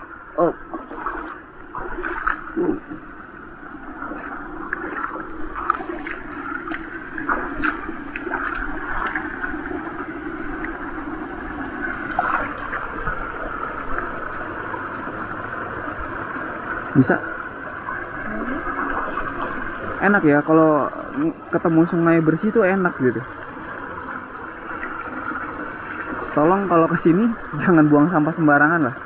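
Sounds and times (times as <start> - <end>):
stream gurgling: 0.0 - 29.0
feet splashing in water: 0.7 - 3.0, 4.0 - 10.0, 12.1 - 14.0.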